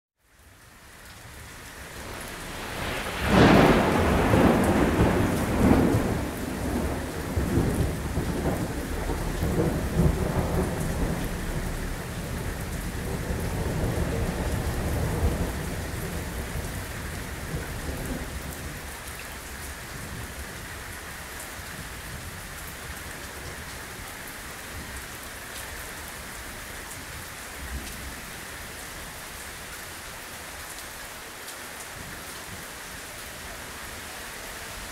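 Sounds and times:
torrential rain: 0:00.2 - 0:34.9
thunderclap rumbling: 0:01.9 - 0:19.0.

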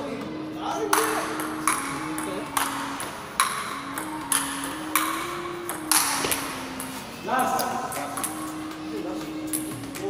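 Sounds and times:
faint background music: 0:00.0 - 0:10.0
table tennis ball clicks: 0:01.0 - 0:06.9.

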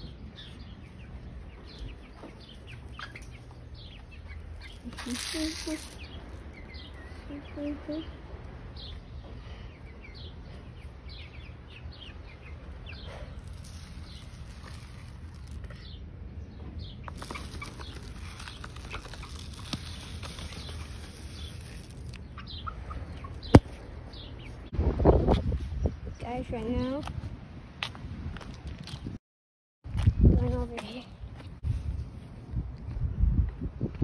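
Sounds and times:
baby chicks peeping: 0:00.0 - 0:24.7.

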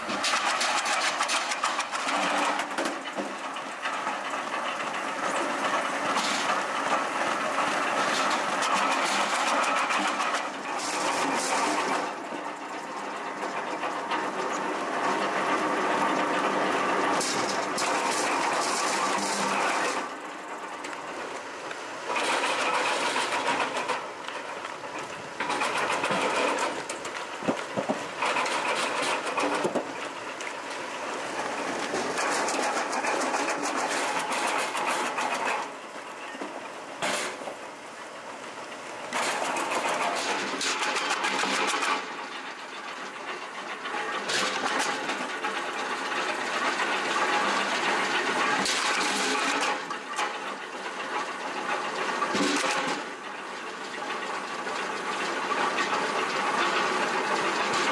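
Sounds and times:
wood-processing machinery clattering: 0:00.0 - 0:57.9.

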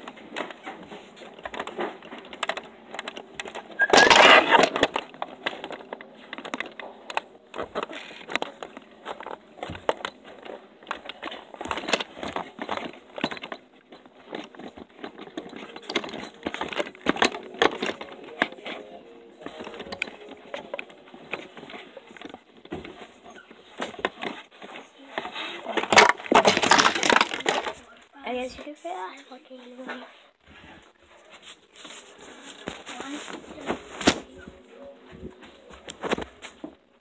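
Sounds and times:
clicks and knocks: 0:25.8 - 0:27.8.

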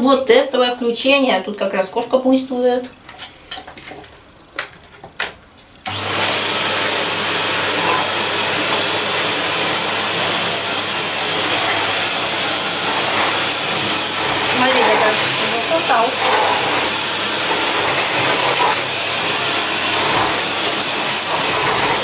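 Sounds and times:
vacuum cleaner motor whining: 0:05.9 - 0:22.0.

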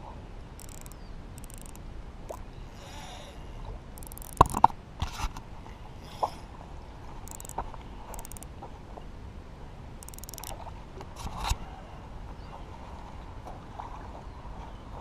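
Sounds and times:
faint outdoor background: 0:00.0 - 0:15.0
fishing reel clicks: 0:00.6 - 0:04.7, 0:07.2 - 0:08.5, 0:10.0 - 0:10.6.

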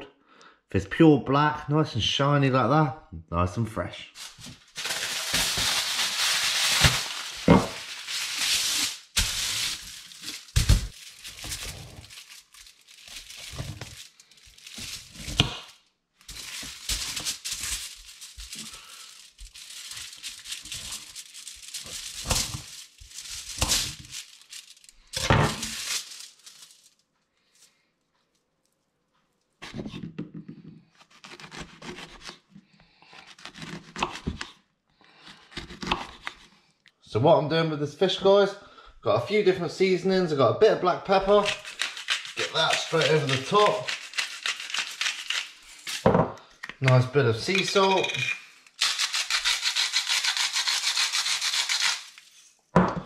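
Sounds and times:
foil tearing and crinkling: 0:04.2 - 0:27.0, 0:41.2 - 0:46.0, 0:48.7 - 0:52.5
rustling and handling: 0:04.2 - 0:29.9, 0:41.2 - 0:50.6.

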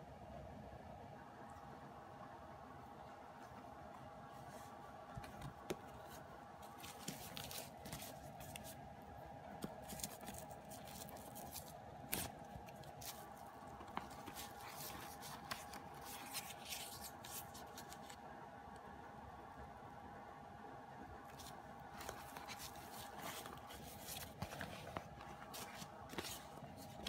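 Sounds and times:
plastic packaging rustling: 0:05.2 - 0:08.8, 0:09.6 - 0:18.2, 0:21.4 - 0:27.0.

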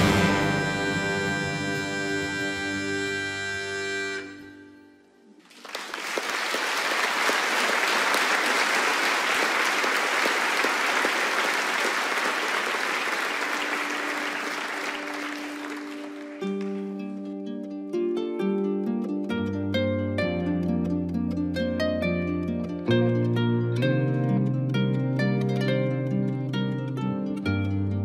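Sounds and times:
plucked string notes: 0:00.0 - 0:05.0, 0:15.4 - 0:28.0
audience applauding: 0:05.4 - 0:17.1.

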